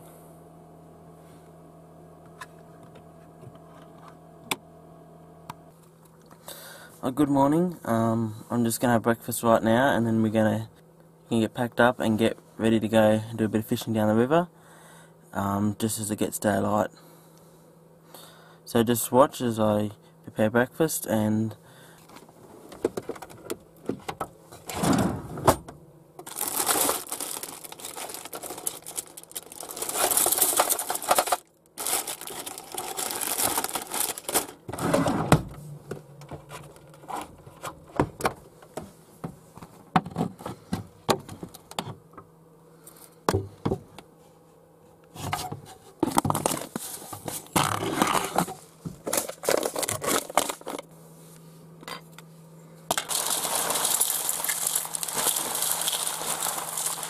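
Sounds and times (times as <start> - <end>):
plastic bowls and spoon clattering: 26.2 - 34.6, 46.0 - 50.8, 52.9 - 57.0
rustling and crinkling: 26.2 - 35.0, 36.0 - 39.9, 45.2 - 50.9, 52.9 - 57.0.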